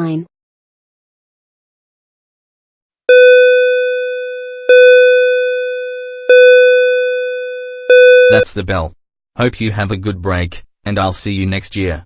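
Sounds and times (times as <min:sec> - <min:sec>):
school bell ringing: 0:03.1 - 0:08.4.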